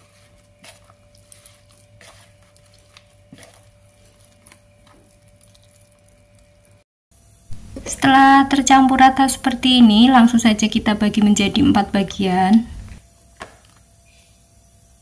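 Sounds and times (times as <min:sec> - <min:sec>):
hands kneading dough: 0:00.0 - 0:06.8
faint steady hum: 0:00.0 - 0:15.0.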